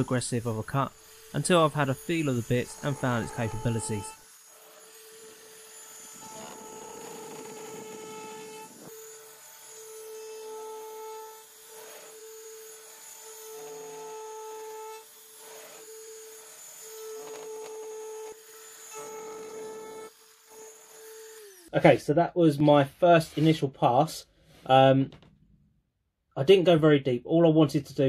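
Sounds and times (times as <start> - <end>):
router motor whine: 0.0 - 21.7
router cutting rasp: 0.0 - 21.8.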